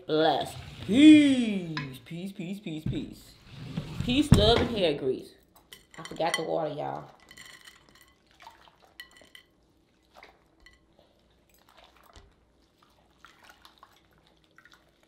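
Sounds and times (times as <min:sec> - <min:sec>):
dishes and utensils clinking: 0:05.6 - 0:08.3, 0:08.9 - 0:09.5.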